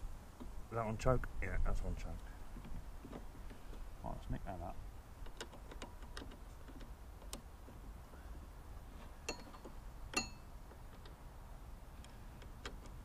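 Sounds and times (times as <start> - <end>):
small metallic clicks and clinks: 9.2 - 11.2.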